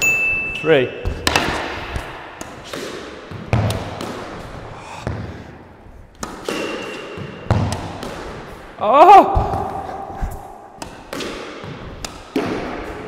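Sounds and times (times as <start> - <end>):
squash ball knocking: 1.1 - 5.4, 6.1 - 8.6, 10.7 - 13.0.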